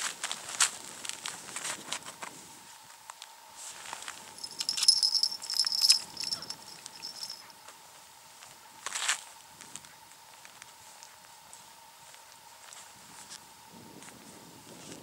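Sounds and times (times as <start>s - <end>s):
thin high ringing: 4.3s - 7.5s
fishing rig clicking and rattling: 4.4s - 7.4s.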